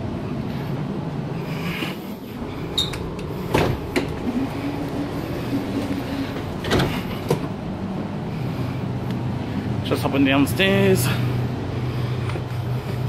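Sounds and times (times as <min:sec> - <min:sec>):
door motor hum: 0:00.0 - 0:09.8
low hum of stationary train: 0:00.0 - 0:13.0
sliding door clunking: 0:02.4 - 0:07.8.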